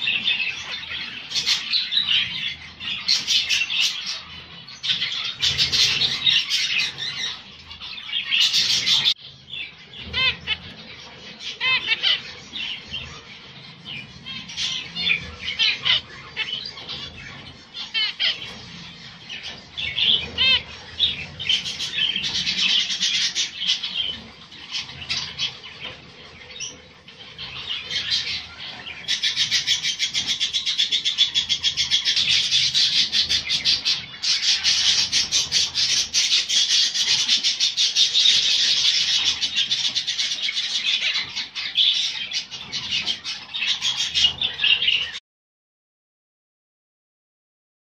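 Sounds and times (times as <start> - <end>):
finches calling: 0.0 - 45.2.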